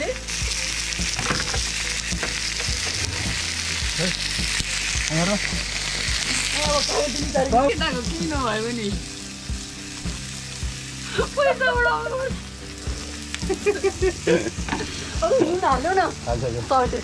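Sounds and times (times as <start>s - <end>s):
food sizzling on grill: 0.0s - 17.0s
voices: 11.1s - 12.4s.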